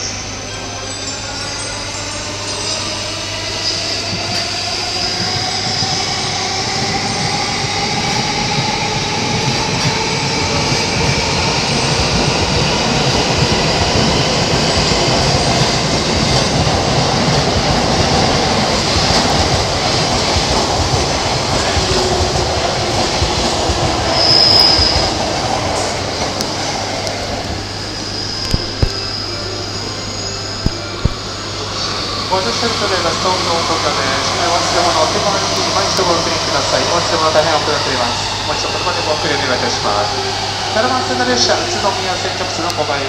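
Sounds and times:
train passing with rail noise: 0.0s - 43.0s
high-pitched brake squeal: 24.1s - 25.2s, 27.7s - 31.0s.

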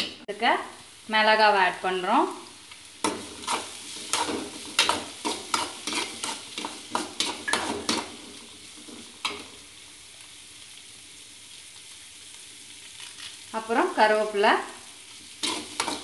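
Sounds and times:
frying sizzle: 0.0s - 16.0s
metal spoon scraping a pan: 3.0s - 9.5s, 15.3s - 16.0s.

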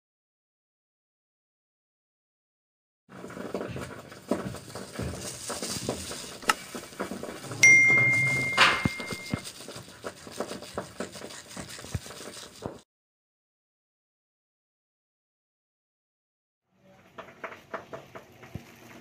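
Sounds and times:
plastic glove crinkling: 3.3s - 7.4s, 9.4s - 12.8s
notification chime: 7.5s - 9.4s.

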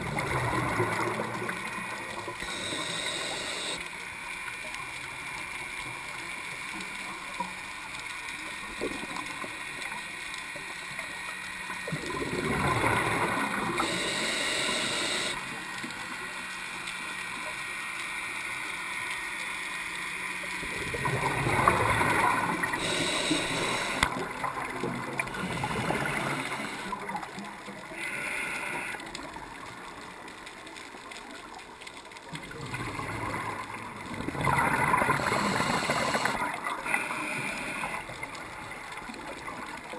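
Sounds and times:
diver breathing through regulator: 2.4s - 3.8s, 13.5s - 15.4s, 22.6s - 24.2s, 25.3s - 27.0s, 28.0s - 29.1s, 34.9s - 38.1s
gurgling exhaled bubbles: 11.9s - 14.1s, 20.7s - 27.3s, 32.4s - 36.8s.

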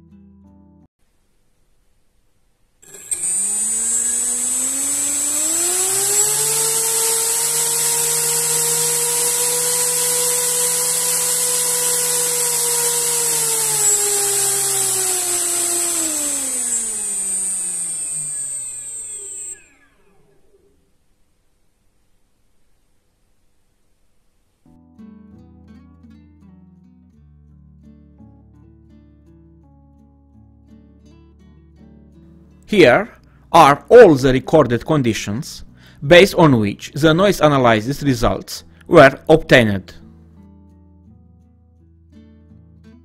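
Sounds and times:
drone motor whine: 2.8s - 21.0s.

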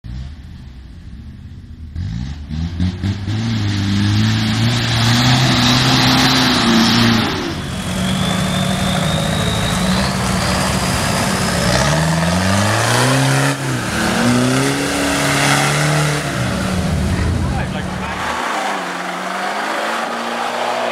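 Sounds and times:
diesel engine revving hard: 2.0s - 20.9s
thin high whistle: 6.6s - 10.6s.

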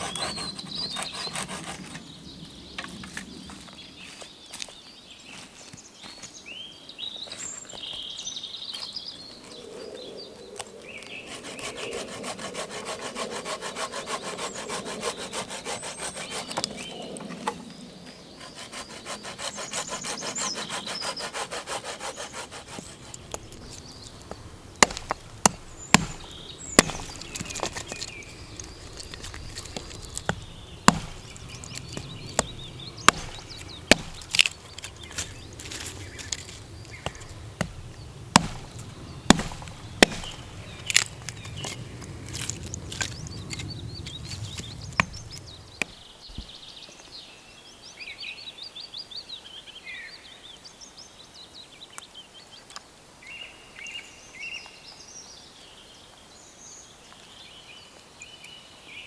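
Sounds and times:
bow saw cutting branch: 0.0s - 2.0s, 11.0s - 17.6s, 18.4s - 23.8s, 24.8s - 46.0s
axe chopping sticks: 24.8s - 43.7s.

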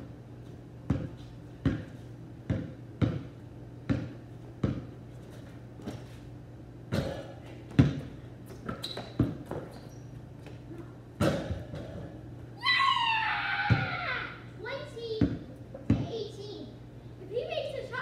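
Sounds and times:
basketball bouncing on concrete: 0.8s - 6.1s, 7.7s - 9.8s, 13.7s - 13.9s, 15.2s - 16.2s.

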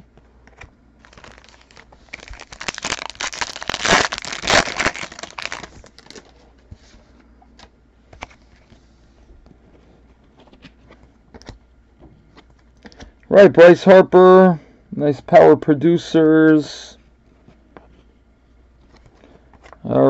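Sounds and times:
wrapper tearing and crinkling: 1.0s - 6.4s.

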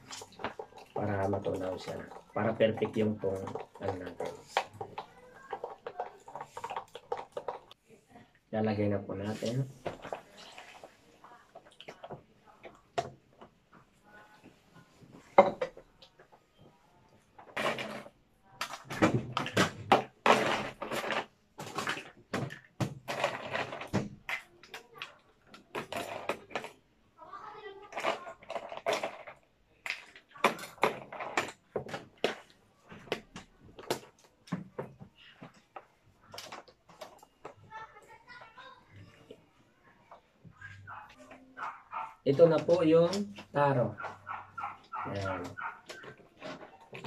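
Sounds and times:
plastic cups and utensils clinking: 0.0s - 27.0s, 27.7s - 47.0s.

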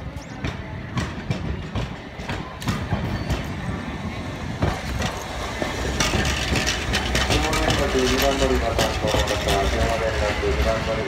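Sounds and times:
streetcar rumbling past: 0.0s - 11.0s
wheels knocking over rail joints: 4.6s - 10.7s.

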